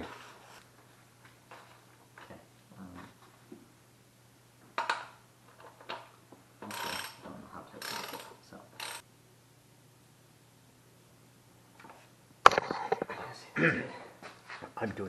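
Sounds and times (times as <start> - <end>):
socket ratchet clicking: 6.7 - 7.2, 7.8 - 9.0.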